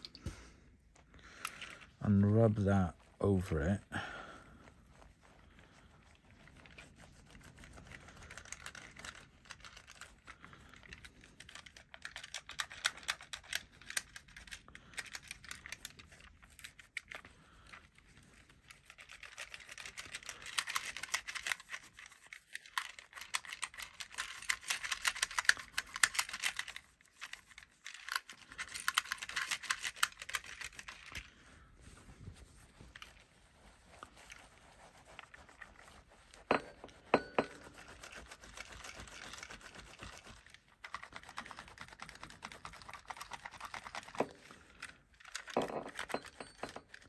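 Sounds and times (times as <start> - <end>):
cloth rubbing on toy car: 4.8 - 9.3, 31.7 - 37.0.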